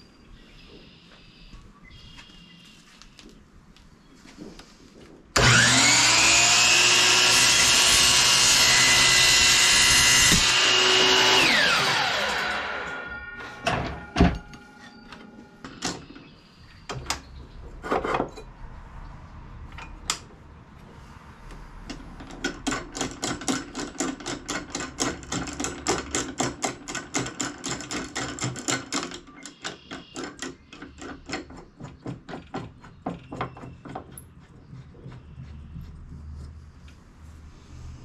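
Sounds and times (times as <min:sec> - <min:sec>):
aluminum track knocking: 0:21.9 - 0:34.3.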